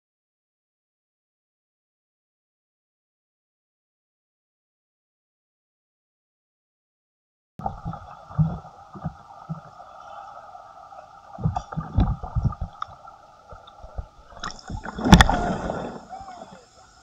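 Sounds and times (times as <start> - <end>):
low thumps of water: 7.6 - 16.8
muffled underwater gurgling: 7.6 - 17.0
steady hum: 7.6 - 17.0.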